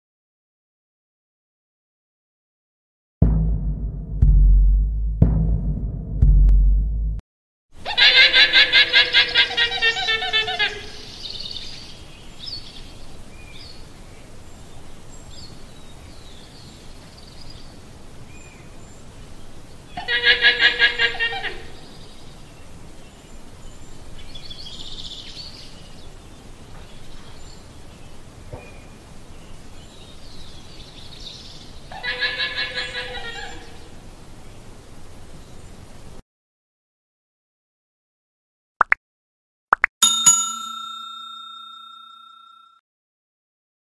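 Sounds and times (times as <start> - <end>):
llama calling: 20.0 - 21.8.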